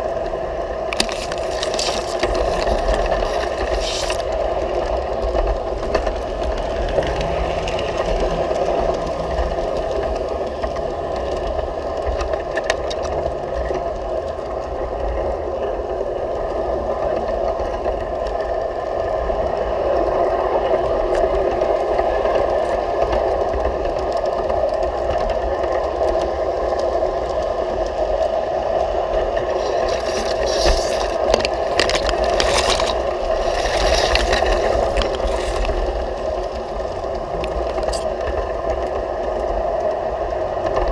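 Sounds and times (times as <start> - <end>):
wheel clicks and rattle on rails: 0.1 - 40.9
leaves and grass brushing: 0.9 - 4.5, 29.4 - 37.0
model train motor whirring: 1.0 - 4.5.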